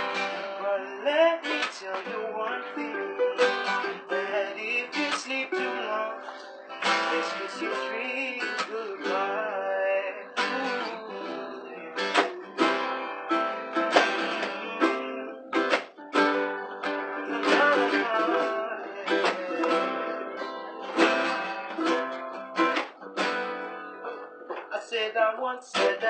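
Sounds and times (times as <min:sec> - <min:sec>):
acoustic guitars and ukulele strumming: 0:00.0 - 0:26.0.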